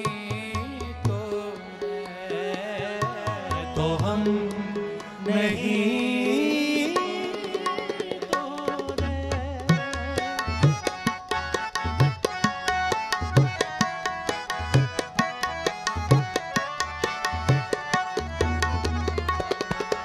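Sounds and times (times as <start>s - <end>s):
tabla playing fast rhythm: 0.0s - 20.0s
held melodic notes: 9.8s - 20.0s.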